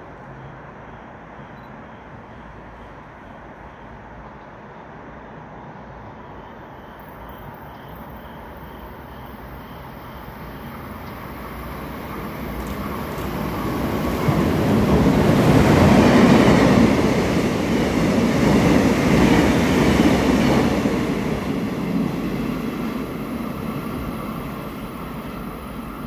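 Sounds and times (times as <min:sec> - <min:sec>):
train wheels rumbling on rails: 0:07.0 - 0:26.0.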